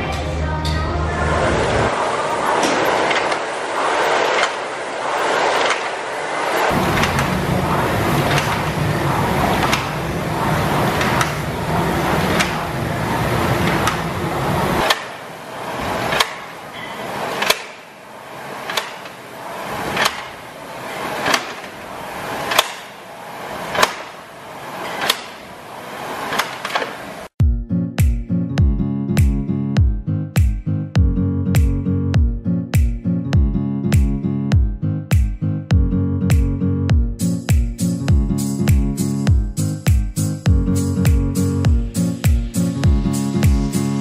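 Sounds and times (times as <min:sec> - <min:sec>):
rowing machine flywheel whirring: 0:00.0 - 0:27.4.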